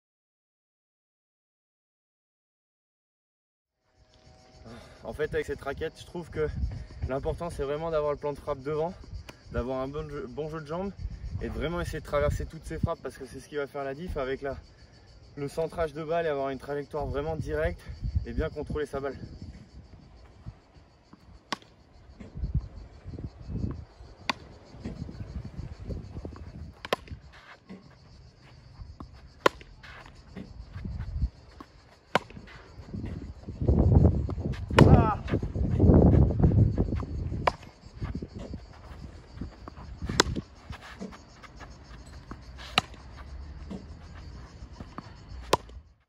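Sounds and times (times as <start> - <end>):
tennis ball struck with racket: 21.5 - 22.3, 24.2 - 25.0, 26.8 - 27.8, 29.4 - 30.5, 31.6 - 32.5, 34.6 - 35.5, 37.4 - 37.7, 39.6 - 41.2, 42.0 - 44.0, 44.8 - 45.8
footsteps: 25.8 - 45.2
ball bouncing: 31.5 - 32.6, 34.3 - 35.4, 36.9 - 37.7, 39.6 - 41.2.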